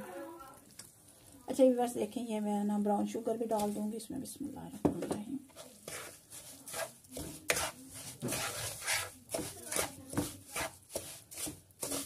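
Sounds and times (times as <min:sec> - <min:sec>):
wooden spoon scraping a pan: 0:04.8 - 0:12.0.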